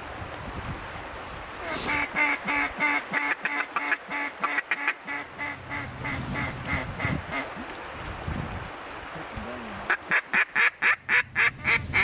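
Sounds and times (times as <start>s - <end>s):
duck call quacks: 1.6s - 7.5s, 9.9s - 12.0s.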